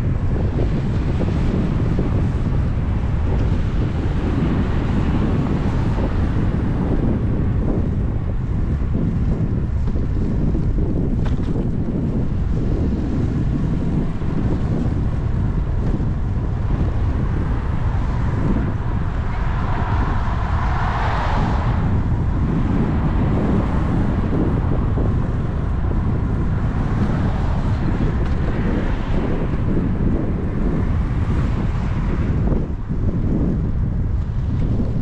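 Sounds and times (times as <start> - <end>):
wind buffeting microphone: 0.0 - 35.0
vehicle passing: 16.0 - 32.3.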